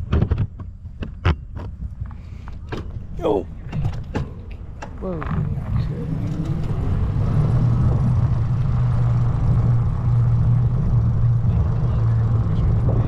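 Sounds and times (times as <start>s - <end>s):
vehicle hum in motion: 0.0s - 13.0s
faint rising whine: 5.4s - 13.0s.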